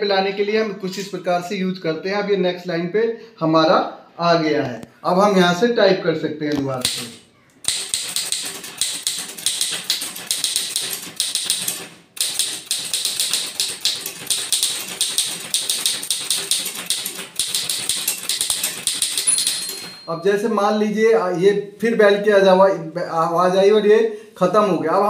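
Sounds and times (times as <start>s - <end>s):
manual typewriter typing fast: 6.8s - 20.2s.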